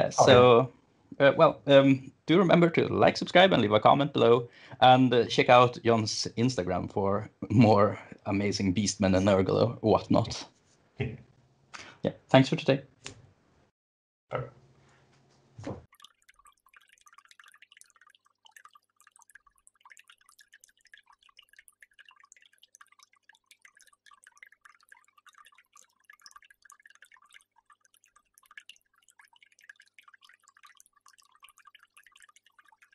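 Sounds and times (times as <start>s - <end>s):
faint steady hum: 0.0s - 2.4s
water dripping and trickling: 15.8s - 32.9s.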